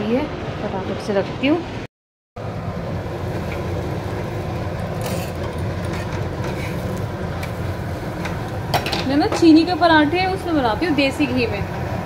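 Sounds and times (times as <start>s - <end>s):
low kitchen rumble: 2.4s - 12.0s.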